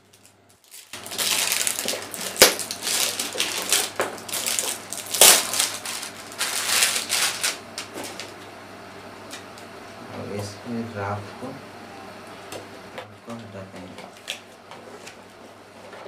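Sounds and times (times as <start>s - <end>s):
plastic shrink-wrap crinkling: 0.0s - 8.4s.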